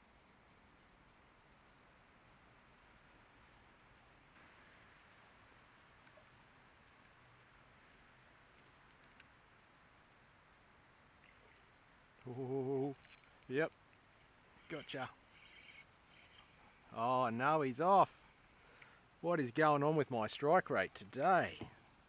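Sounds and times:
high-pitched insect drone: 0.0 - 22.0
tiny ticks: 5.9 - 9.5.

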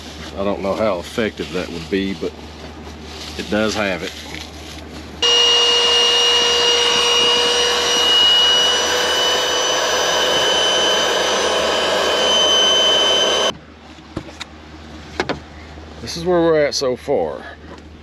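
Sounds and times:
electric air pump whining: 5.2 - 13.5.

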